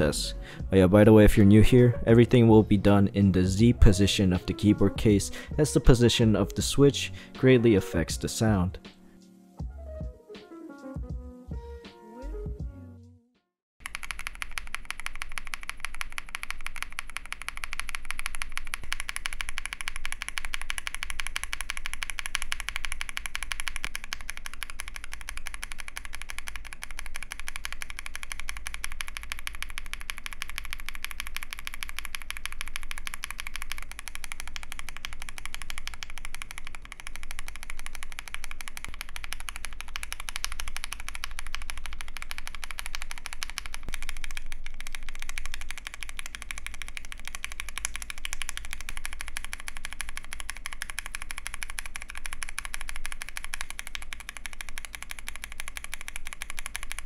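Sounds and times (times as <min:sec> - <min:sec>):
fast mechanical keyboard typing: 0:13.8 - 0:57.0.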